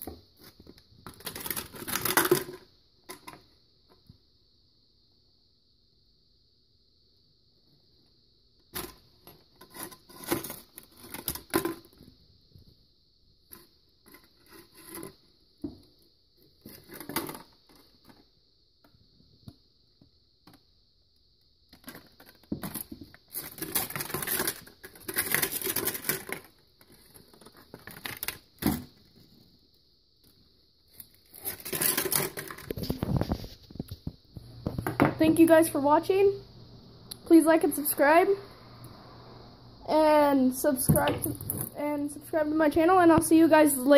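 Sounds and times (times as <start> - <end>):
plastic cup crinkling: 0.4 - 3.3, 21.8 - 28.9, 30.9 - 35.0.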